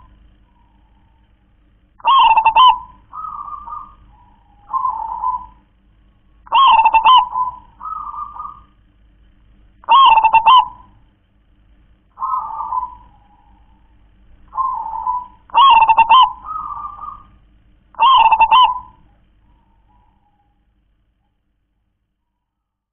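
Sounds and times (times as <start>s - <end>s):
dove cooing: 0.0s - 1.4s, 2.0s - 8.8s, 9.8s - 11.1s, 12.1s - 20.6s.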